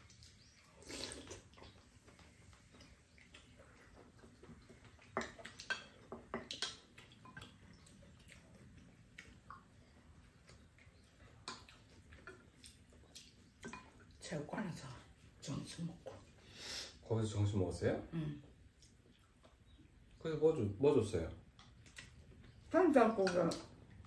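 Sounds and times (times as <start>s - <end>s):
chewing: 0.0s - 16.5s, 18.4s - 20.2s, 21.4s - 24.0s.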